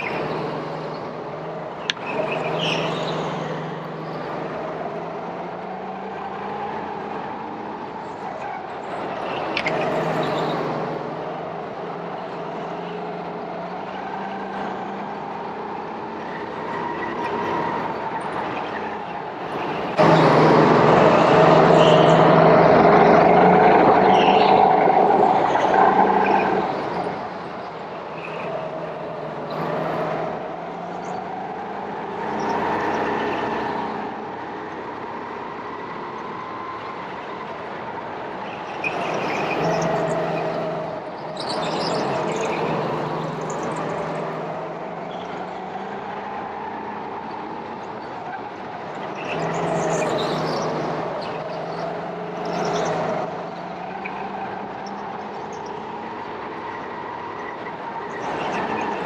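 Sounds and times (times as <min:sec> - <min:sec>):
go-kart engine running: 0:00.0 - 0:36.1.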